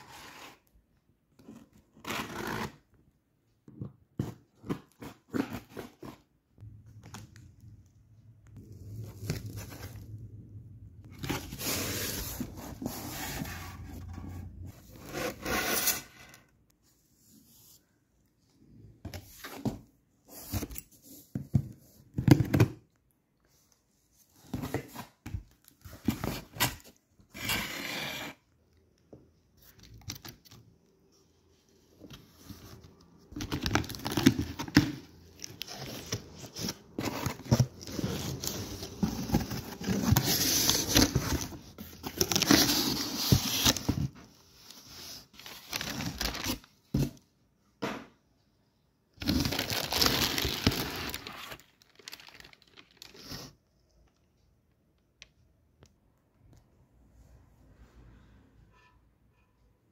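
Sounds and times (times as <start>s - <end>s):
plastic wrapping crinkling: 49.3s - 53.3s.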